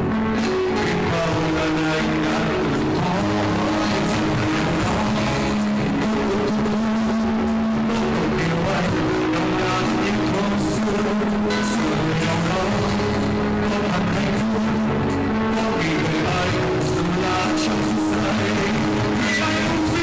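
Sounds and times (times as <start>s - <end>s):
bass guitar: 0.0s - 20.0s
electric guitar: 0.0s - 20.0s.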